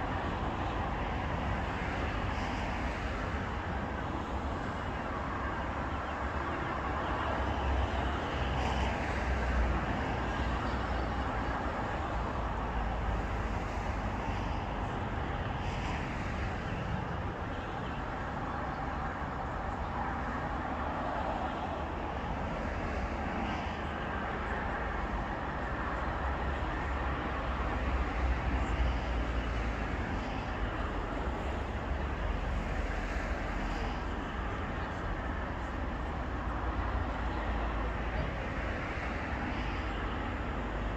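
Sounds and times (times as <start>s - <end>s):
road traffic hum: 0.0s - 40.9s.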